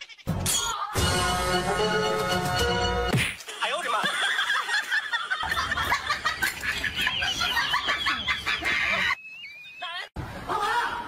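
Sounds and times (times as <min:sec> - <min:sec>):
birds chirping and clucking: 0:05.6 - 0:10.0.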